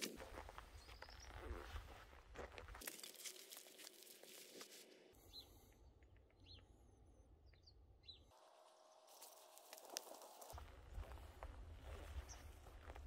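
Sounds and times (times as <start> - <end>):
footsteps crunching on gravel: 0.0 - 4.8, 9.1 - 13.0.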